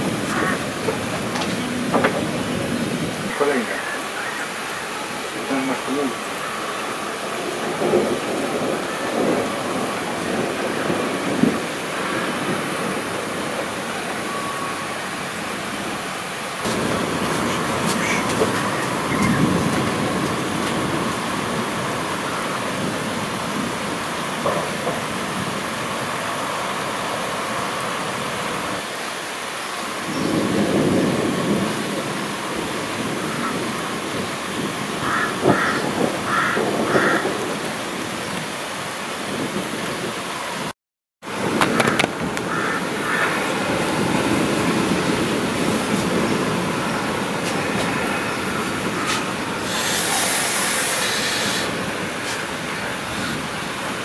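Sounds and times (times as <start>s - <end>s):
steady rain falling: 0.0s - 54.0s
low thunder rumble: 6.7s - 25.7s, 30.1s - 38.4s.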